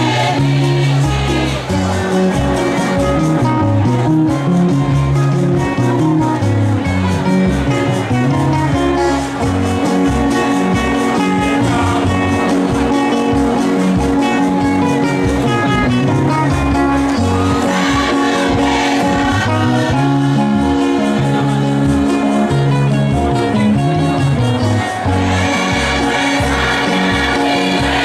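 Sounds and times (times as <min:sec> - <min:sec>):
church choir singing: 0:00.0 - 0:03.0, 0:17.0 - 0:22.4, 0:24.8 - 0:28.0
bass guitar: 0:00.0 - 0:28.0
electric guitars: 0:00.0 - 0:28.0.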